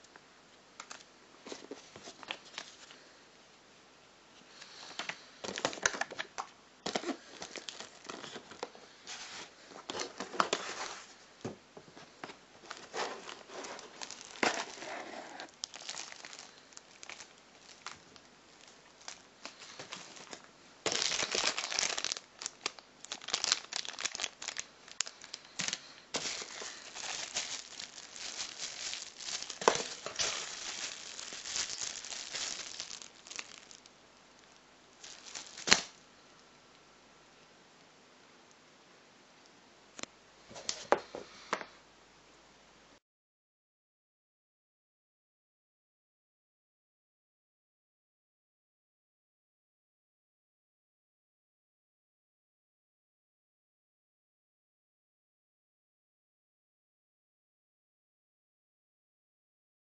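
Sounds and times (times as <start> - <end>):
bubble wrap crinkling: 5.4 - 11.1, 12.6 - 36.4.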